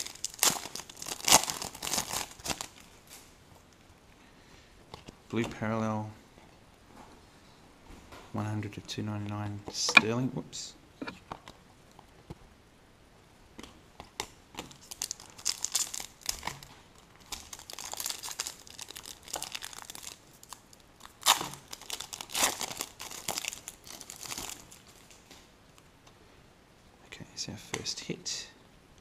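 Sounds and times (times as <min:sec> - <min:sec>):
foil wrapper tearing and crinkling: 0:00.0 - 0:03.2, 0:14.6 - 0:25.3.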